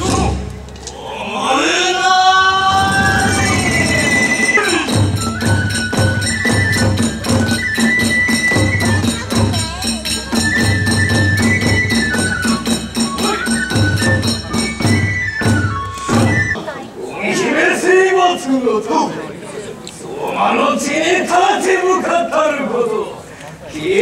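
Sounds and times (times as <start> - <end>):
taiko drum beats: 0.0 - 0.7, 2.6 - 16.6
bamboo flute melody: 0.0 - 16.8.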